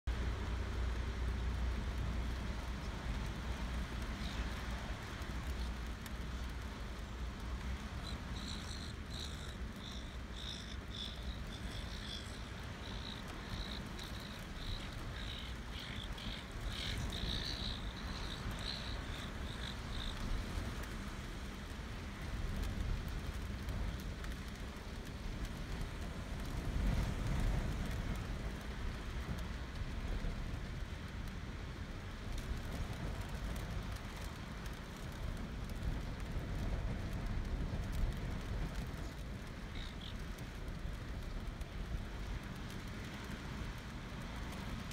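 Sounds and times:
wind: 0:00.0 - 0:44.9
rough surf: 0:00.1 - 0:30.8.

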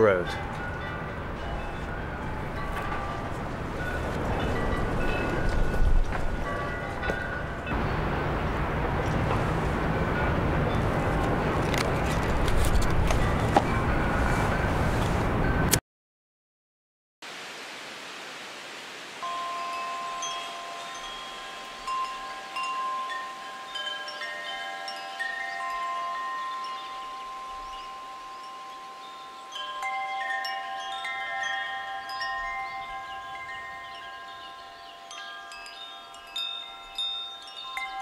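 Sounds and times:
metal wind chimes ringing: 0:00.0 - 0:08.0, 0:13.1 - 0:14.8, 0:19.2 - 0:38.0.

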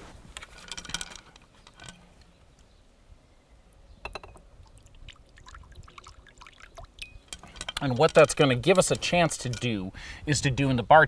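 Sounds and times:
glass clinks: 0:04.0 - 0:04.4, 0:07.0 - 0:07.8
water trickling into glass: 0:04.1 - 0:07.8.

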